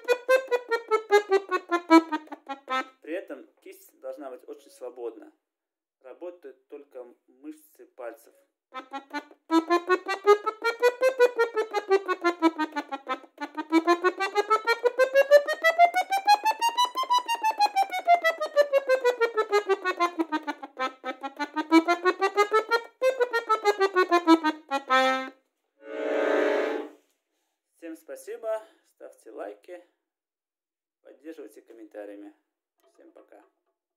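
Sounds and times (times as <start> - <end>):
button accordion playing scales: 0.0 - 2.9, 8.8 - 27.0.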